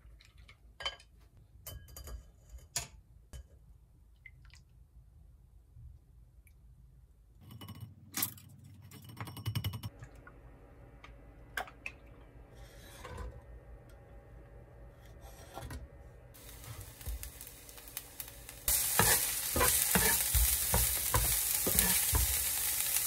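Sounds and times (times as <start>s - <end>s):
faint steady hum: 9.5s - 23.0s.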